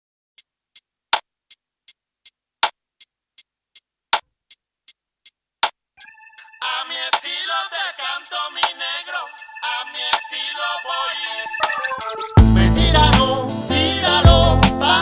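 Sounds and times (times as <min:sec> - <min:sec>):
synth chord: 0:06.0 - 0:06.9, 0:09.1 - 0:13.2
drum machine beat: 0:08.6 - 0:15.0.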